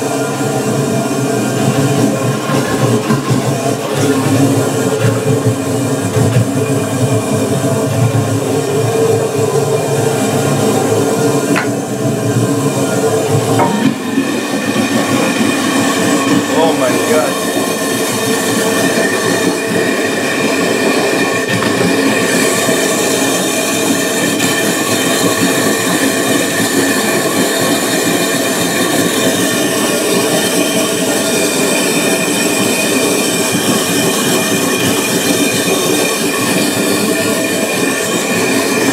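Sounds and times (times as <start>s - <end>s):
water churning in toilet cistern: 0.0s - 38.9s
steady humming tones: 3.4s - 21.3s.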